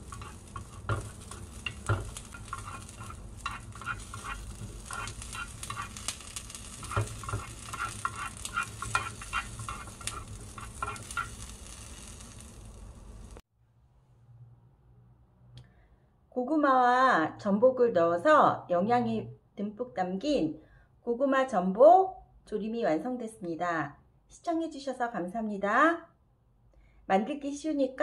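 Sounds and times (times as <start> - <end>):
faint frying sizzle: 0.0 - 13.4.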